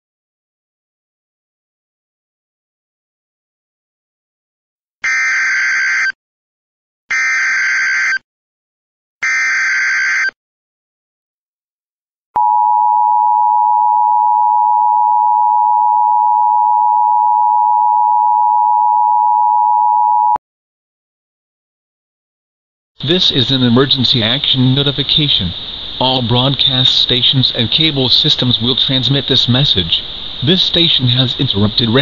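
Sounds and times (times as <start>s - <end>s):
two-tone alarm: 5.0s - 6.2s, 7.1s - 8.2s, 9.2s - 10.4s, 12.4s - 20.4s.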